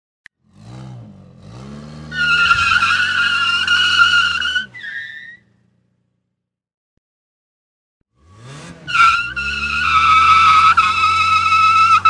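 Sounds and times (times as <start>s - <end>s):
car engine revving: 0.4s - 6.1s, 8.2s - 12.0s
tyres squealing: 2.1s - 5.4s, 8.9s - 12.0s.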